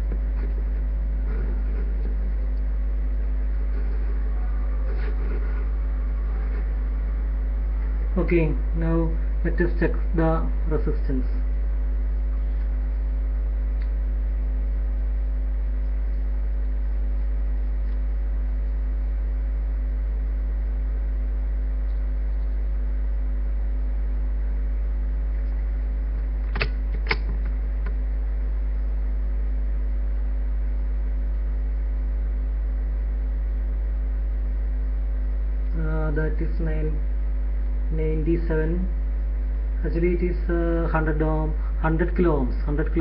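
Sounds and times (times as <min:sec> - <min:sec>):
electrical mains hum: 0:00.0 - 0:43.0
sharp clicks: 0:26.2 - 0:28.0.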